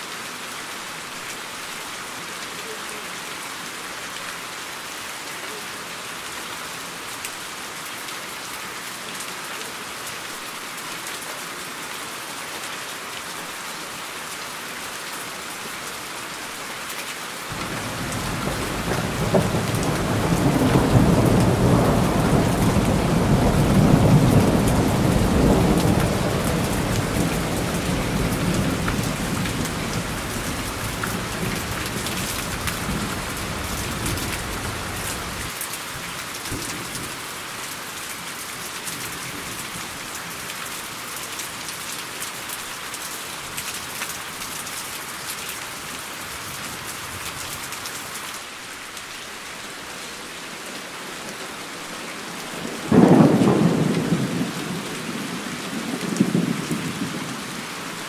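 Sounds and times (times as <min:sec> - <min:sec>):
steady rain: 0:00.0 - 0:58.0
thunder rolling: 0:17.5 - 0:34.9, 0:52.8 - 0:55.1.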